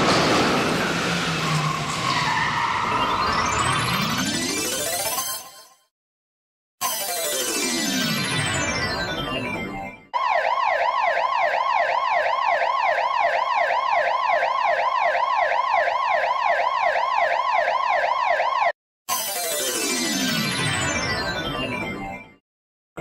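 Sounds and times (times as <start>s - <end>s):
emergency siren in fast yelp: 0.0s - 4.3s, 10.1s - 18.8s
descending sound effect: 0.0s - 5.0s.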